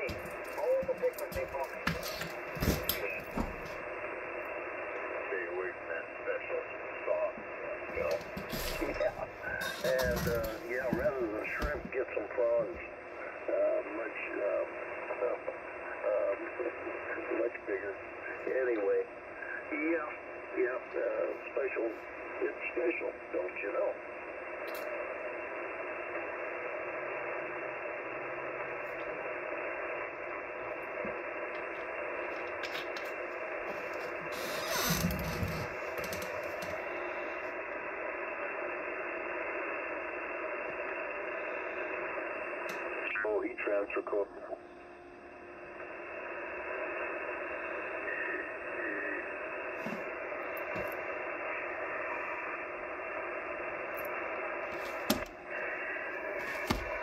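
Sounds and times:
radio static hiss: 0.0 - 57.0
faint radio whistles: 5.0 - 12.2, 45.8 - 57.0.

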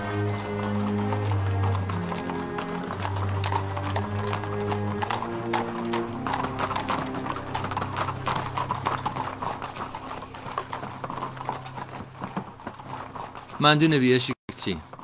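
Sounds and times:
music with held low notes: 0.0 - 11.6
horse hooves clip-clopping: 0.0 - 15.0.

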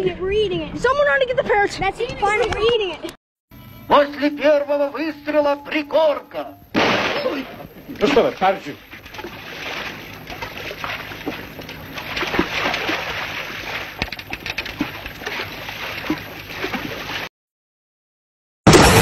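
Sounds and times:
steady outdoor hiss: 3.5 - 17.3
fish thrashing and water splashing: 6.8 - 17.3.

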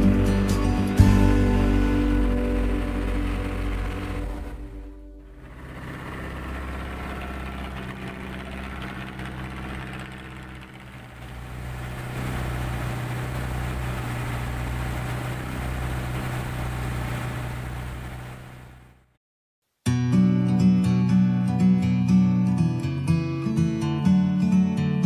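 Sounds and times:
water noise: 0.0 - 19.1
boat engine running: 0.0 - 19.2.

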